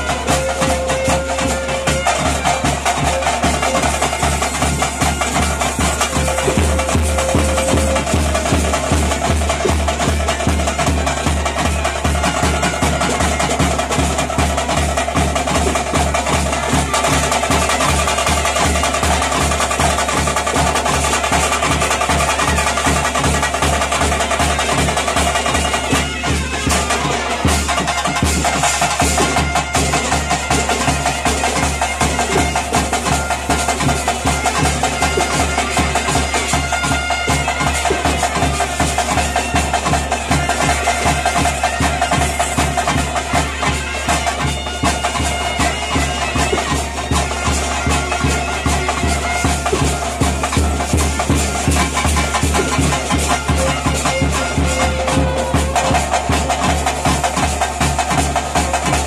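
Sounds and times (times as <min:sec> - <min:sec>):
fast steady drumbeat: 0:00.0 - 0:59.0
reedy double-reed pipe: 0:00.0 - 0:59.0.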